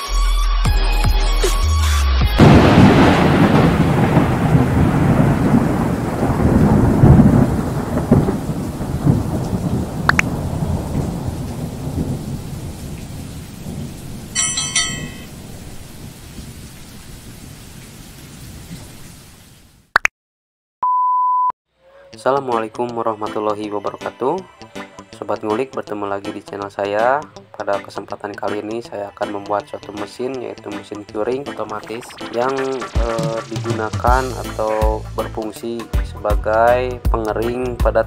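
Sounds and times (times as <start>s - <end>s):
thunder-like rumble: 2.4s - 16.7s
rain-like hiss: 2.4s - 19.9s
short steady beep: 20.8s - 21.5s.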